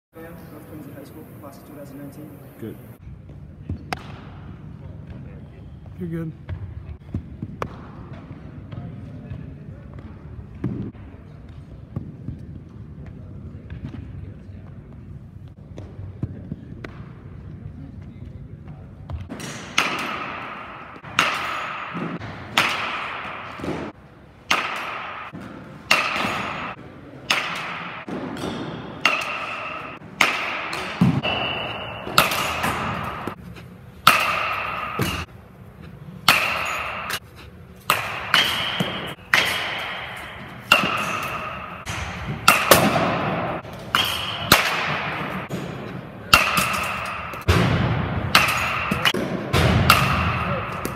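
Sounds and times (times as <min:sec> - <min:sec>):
metal bat hitting ball: 0:19.3 - 0:33.4, 0:34.0 - 0:35.3, 0:36.2 - 0:37.2, 0:37.8 - 0:50.9.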